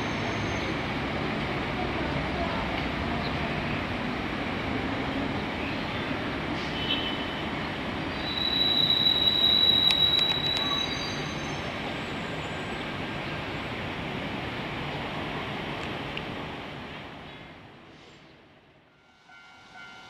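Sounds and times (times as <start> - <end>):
high wheel squeal: 0.0 - 0.9, 8.1 - 12.8
electric train rolling: 7.8 - 13.0.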